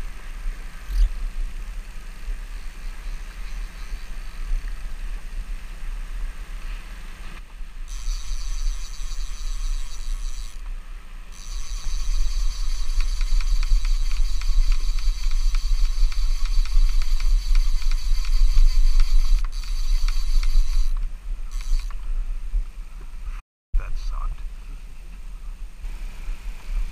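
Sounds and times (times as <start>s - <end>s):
fishing reel clicker buzzing: 7.9s - 10.7s, 11.3s - 22.0s.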